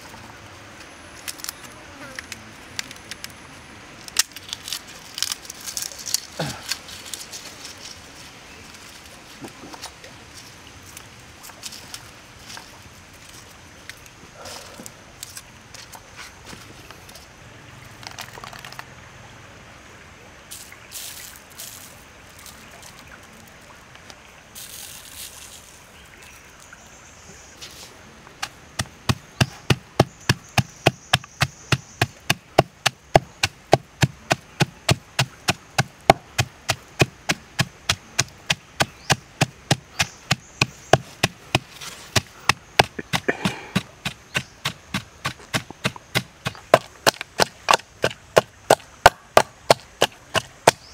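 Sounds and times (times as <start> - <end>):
pestle pounding in wooden mortar: 28.4 - 50.9.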